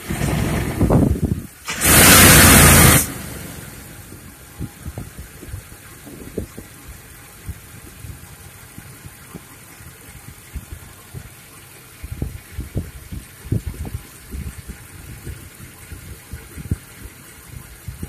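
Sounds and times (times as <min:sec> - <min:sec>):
loud rush of noise: 0:00.0 - 0:05.0
car engine idling with knocks: 0:00.0 - 0:18.0.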